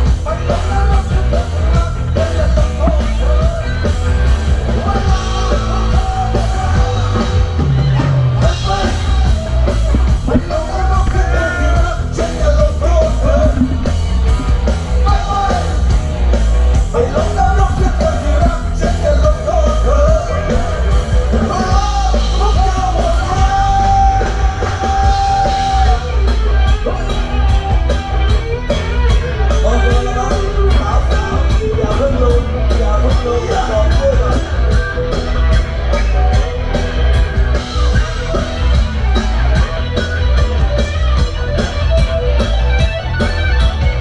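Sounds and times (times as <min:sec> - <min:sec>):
loud rock music: 0:00.0 - 0:44.0
person shouting and singing: 0:15.0 - 0:15.9, 0:16.9 - 0:27.2.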